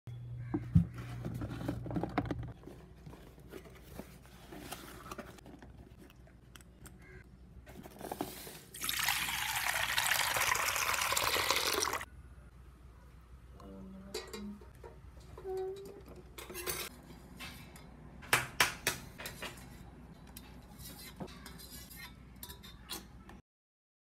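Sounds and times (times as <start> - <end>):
tap water gushing into a pot: 8.8 - 12.1.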